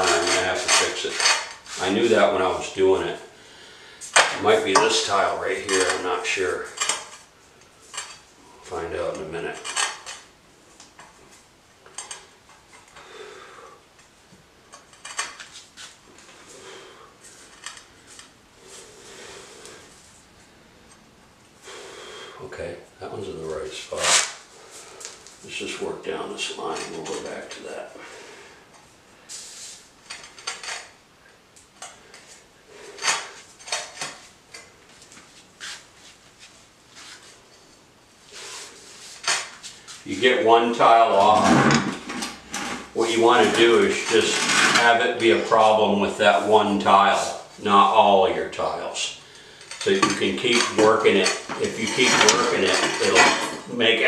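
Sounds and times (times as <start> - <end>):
ceramic tiles scraping and clinking: 49.7 - 53.6.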